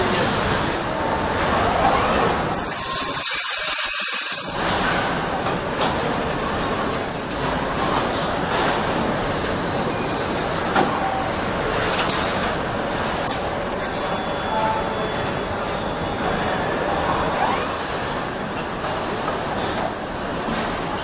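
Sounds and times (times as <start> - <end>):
factory machinery din: 0.0 - 21.0
loud hiss: 2.6 - 4.6.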